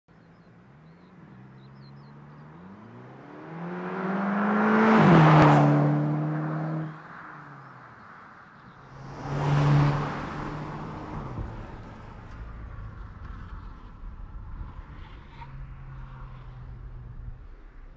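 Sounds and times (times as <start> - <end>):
car engine accelerating hard: 1.6 - 7.0.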